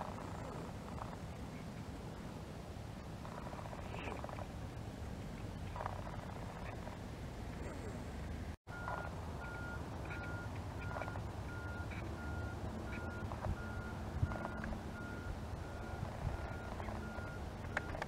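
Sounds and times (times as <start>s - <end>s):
reversing alarm beeping: 8.7s - 18.0s.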